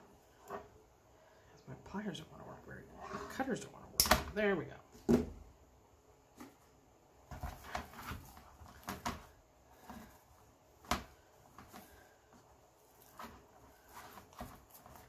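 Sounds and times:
mesh and ribbon rustling: 6.4 - 15.0.

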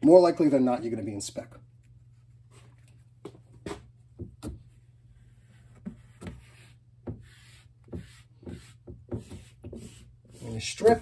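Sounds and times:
cloth wiping whiteboard: 4.6 - 11.0.

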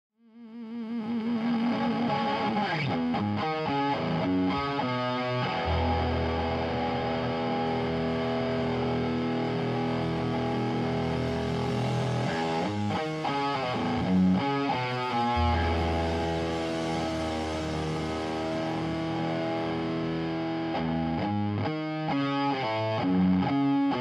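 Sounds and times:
distorted electric guitar: 0.2 - 24.0.

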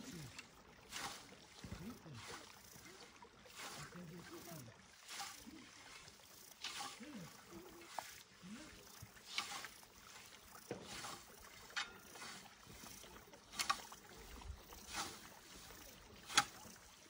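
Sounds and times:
scythe swishing through grass: 0.9 - 1.4, 5.0 - 7.2, 7.8 - 16.8.

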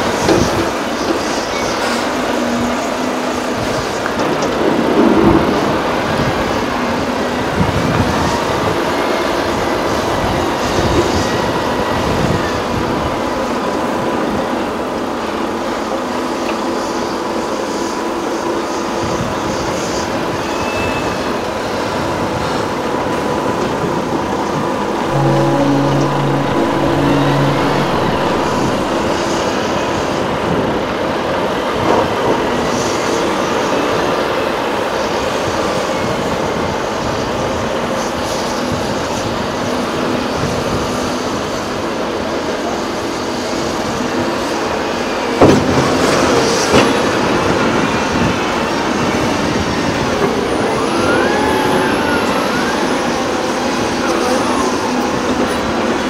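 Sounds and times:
diesel earthmoving machinery running: 23.8 - 30.7
short wavering squeal: 25.0 - 30.1.

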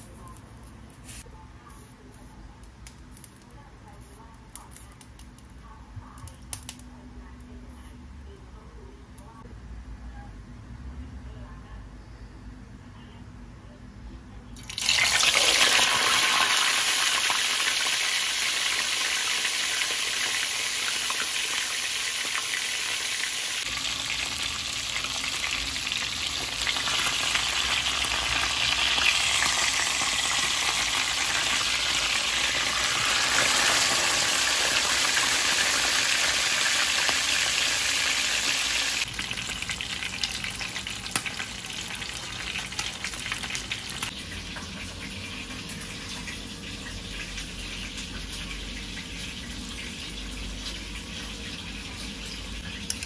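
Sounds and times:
fish sizzling in hot oil: 14.7 - 52.7.

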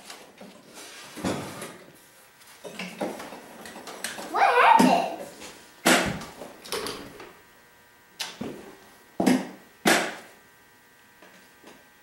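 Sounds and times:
sharp knocks on a planer: 5.8 - 6.3, 9.2 - 10.3.

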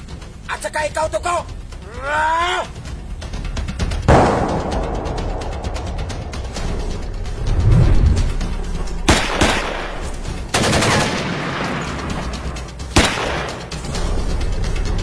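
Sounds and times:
background music: 0.0 - 15.0
gunshots: 9.1 - 12.1, 12.9 - 13.8.

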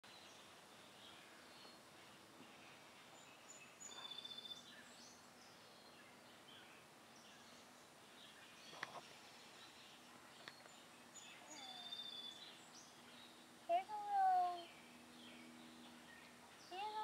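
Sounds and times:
faint bird chirps: 0.1 - 17.0
bird trill: 10.4 - 13.4.

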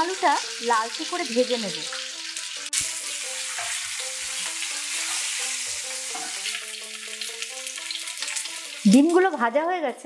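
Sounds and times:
food sizzling in oil: 0.0 - 9.6
soft background music: 0.0 - 10.0.

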